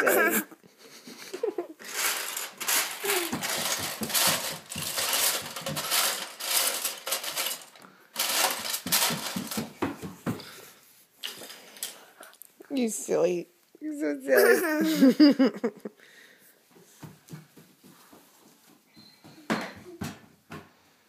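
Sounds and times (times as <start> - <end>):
clattering and rustling: 0.2 - 10.6, 11.2 - 12.2
small footsteps on hardwood floor: 2.3 - 6.2, 8.2 - 10.7, 16.6 - 21.0
child vocal sounds: 3.0 - 3.4.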